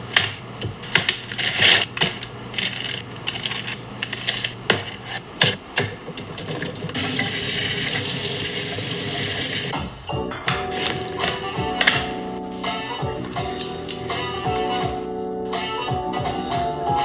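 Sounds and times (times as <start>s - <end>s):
tap water running: 6.3s - 9.7s.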